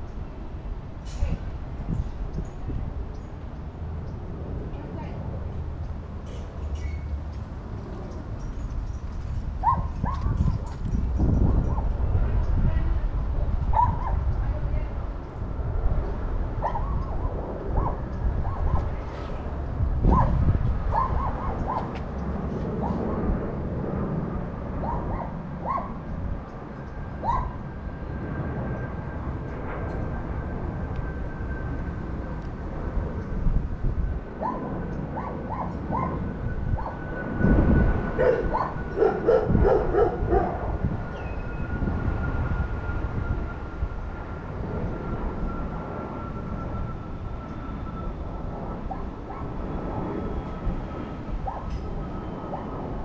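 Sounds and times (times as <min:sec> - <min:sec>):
dog barking: 0:09.6 - 0:10.4, 0:13.7 - 0:14.2, 0:16.6 - 0:17.0, 0:20.1 - 0:21.9, 0:24.8 - 0:26.0, 0:27.2 - 0:27.6, 0:34.4 - 0:36.2, 0:38.2 - 0:40.6.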